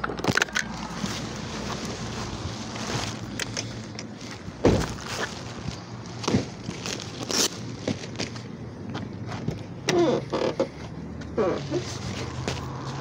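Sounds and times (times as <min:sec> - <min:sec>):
knocks and rustles: 0:00.0 - 0:08.4
thud: 0:04.6 - 0:05.0.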